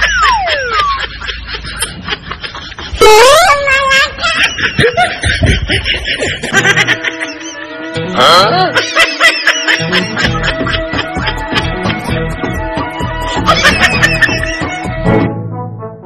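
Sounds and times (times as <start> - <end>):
rising cartoon glide: 0.0 - 1.0
snickering laugh effect: 0.0 - 12.2, 13.2 - 14.8
comedy music with steady beat: 0.0 - 16.0.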